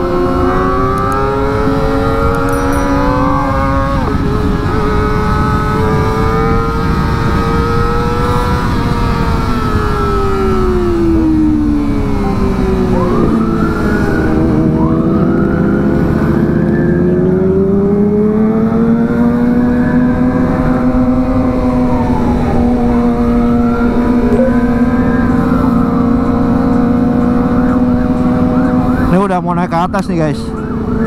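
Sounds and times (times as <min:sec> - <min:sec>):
motorcycle engines running: 0:00.0 - 0:31.0
siren-like tone sweeping: 0:00.2 - 0:05.1, 0:10.0 - 0:17.7, 0:21.7 - 0:29.4.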